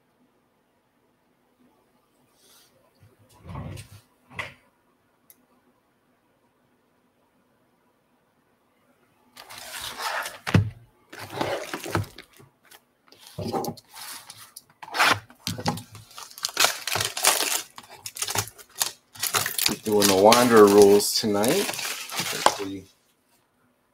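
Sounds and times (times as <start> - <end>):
cellophane crackling and crinkling: 9.4 - 22.9.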